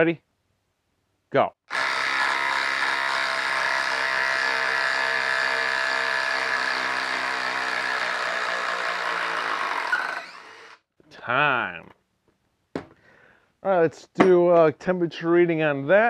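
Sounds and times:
impact driver hammering: 1.7s - 10.6s.

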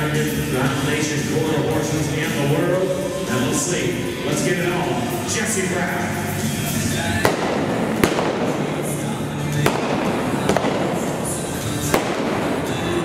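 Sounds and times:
background music: 0.0s - 13.0s
revolver shots: 7.2s - 13.0s.

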